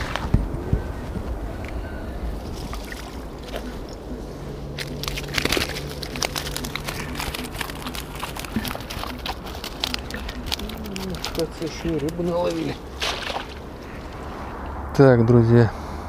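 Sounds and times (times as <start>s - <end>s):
water splashing and dripping: 2.4s - 4.0s, 4.8s - 14.2s
net mesh crackling and rustling: 4.7s - 13.7s.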